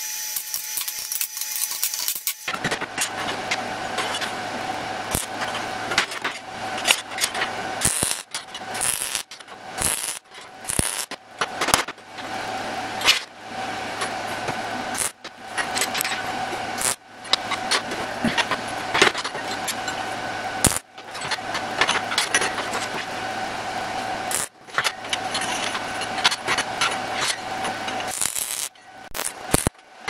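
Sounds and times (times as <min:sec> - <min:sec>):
welder arc crackling and buzzing: 0:00.0 - 0:30.0.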